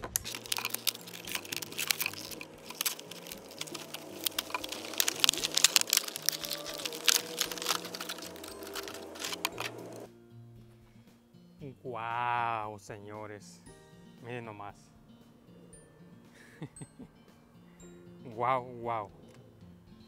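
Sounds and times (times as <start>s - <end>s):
plastic packaging crackling: 0.0s - 10.1s.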